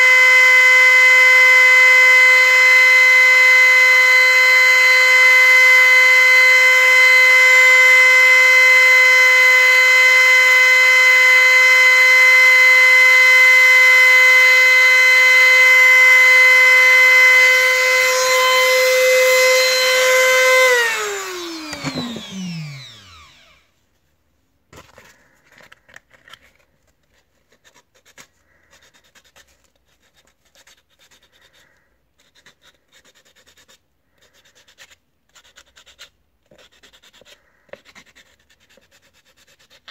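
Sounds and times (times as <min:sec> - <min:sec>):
rotary tool whining: 0:00.0 - 0:23.7
sandpaper scratching on plastic: 0:24.8 - 0:39.9.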